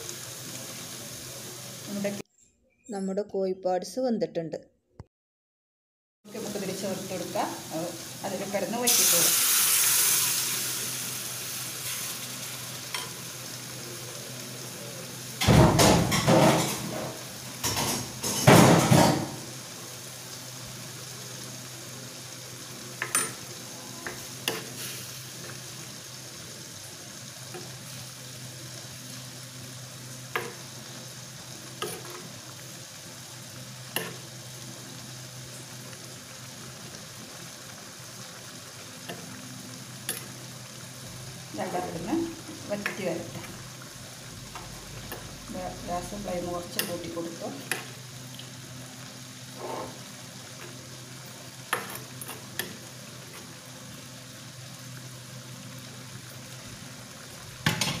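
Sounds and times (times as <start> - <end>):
liquid bubbling and sizzling: 0.0 - 2.2, 6.3 - 58.0
spoon stirring and tapping pot: 30.4 - 30.6, 51.7 - 52.8.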